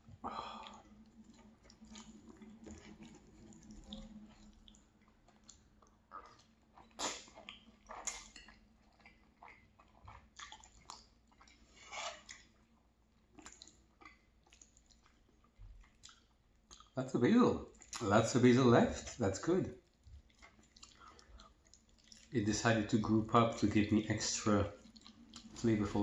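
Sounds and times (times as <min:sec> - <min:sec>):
chewing: 0:00.0 - 0:17.0, 0:17.6 - 0:18.1, 0:19.8 - 0:22.4, 0:24.6 - 0:25.8
slurping pasta: 0:06.1 - 0:12.6.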